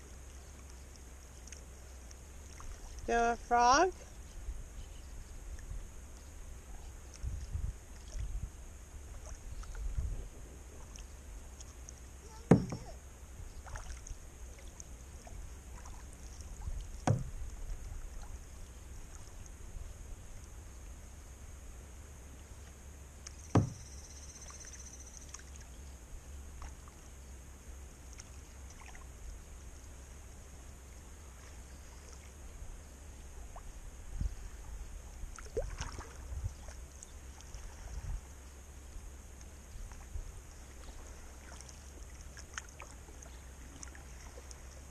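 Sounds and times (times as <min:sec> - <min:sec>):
low steady rumble: 0:00.0 - 0:44.9
sharp knocks on kayak: 0:12.4 - 0:12.9, 0:17.0 - 0:17.4, 0:23.5 - 0:23.8.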